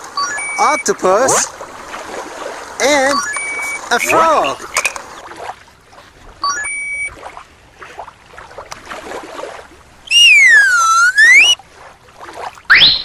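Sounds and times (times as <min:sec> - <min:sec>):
slide whistle: 0:03.2 - 0:03.8, 0:10.1 - 0:11.6, 0:12.7 - 0:13.0.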